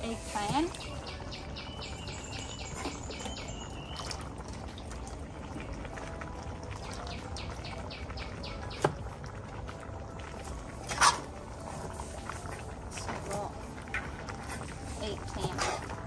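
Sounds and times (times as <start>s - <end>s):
birds chirping rapidly: 0.4s - 4.4s, 6.8s - 8.9s.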